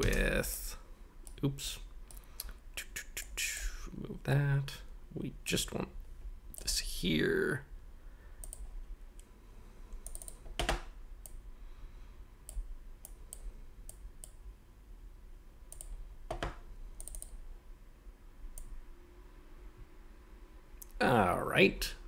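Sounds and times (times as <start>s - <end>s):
mouse and keyboard clicks: 10.0s - 11.4s.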